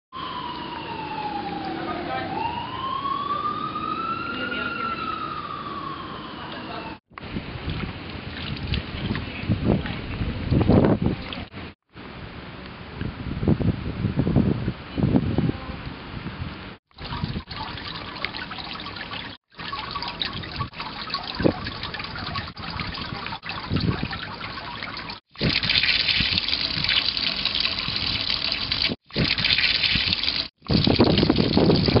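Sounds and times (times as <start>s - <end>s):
water pouring onto paving: 7.6s - 10.1s, 16.9s - 32.0s
water trickling at drain grate: 7.6s - 11.5s, 16.9s - 32.0s.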